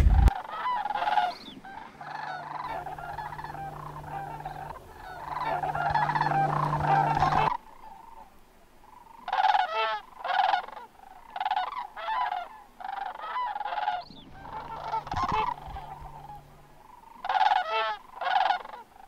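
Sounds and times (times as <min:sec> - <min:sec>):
cranes calling in flight: 0:00.4 - 0:07.6, 0:09.3 - 0:18.8.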